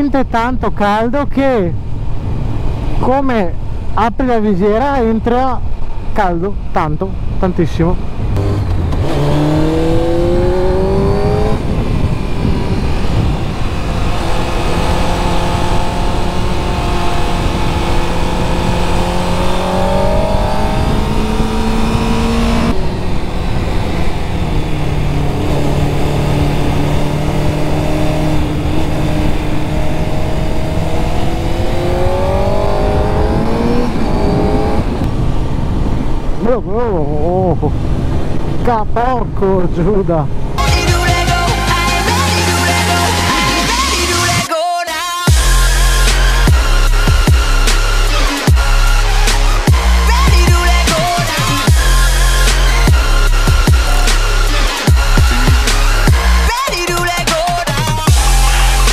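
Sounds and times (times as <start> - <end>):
wind rush on microphone: 0.1 - 40.6
motorcycle engine accelerating: 8.0 - 36.4, 45.3 - 56.6.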